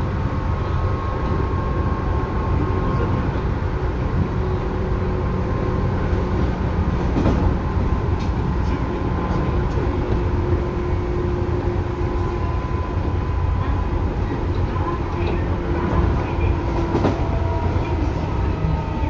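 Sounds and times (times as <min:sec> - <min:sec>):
train wheels rumbling on rails: 0:00.0 - 0:19.0
light track clicks: 0:08.1 - 0:10.3.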